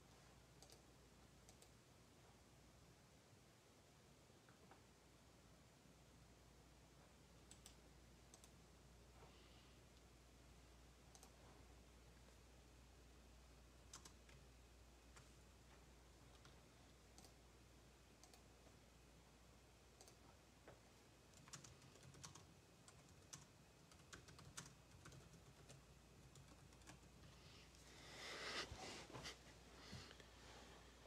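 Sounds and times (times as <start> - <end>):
typing on keyboard: 0.6 - 1.8, 13.9 - 14.4, 20.0 - 20.2, 21.3 - 27.3.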